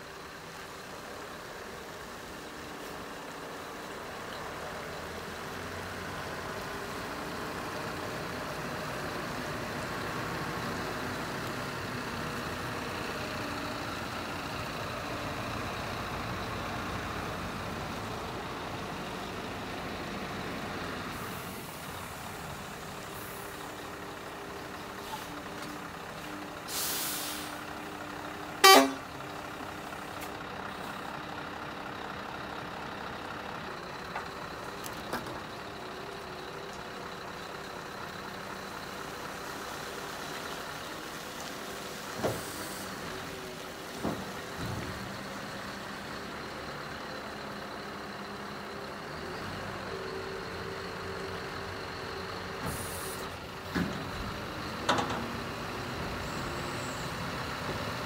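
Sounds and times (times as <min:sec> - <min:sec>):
diesel engine idling: 0:00.0 - 0:58.0
short hiss: 0:26.7 - 0:27.6.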